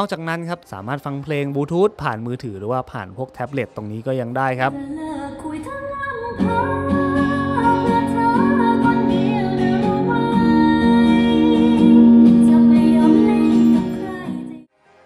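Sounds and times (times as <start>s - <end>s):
woman singing: 4.7s - 14.7s
acoustic guitar: 5.0s - 14.7s.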